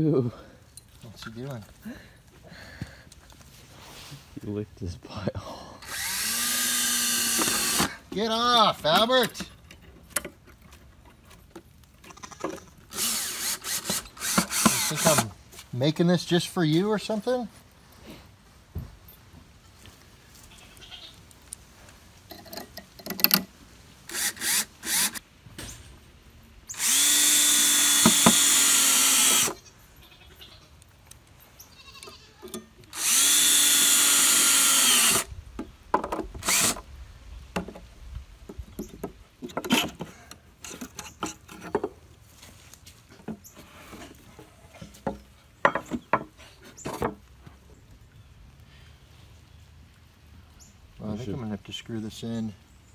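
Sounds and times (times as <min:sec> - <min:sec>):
cordless drill driving screws: 0:05.8 - 0:08.0, 0:12.9 - 0:15.3, 0:24.1 - 0:25.2, 0:26.7 - 0:29.6, 0:32.9 - 0:35.3, 0:36.4 - 0:36.8.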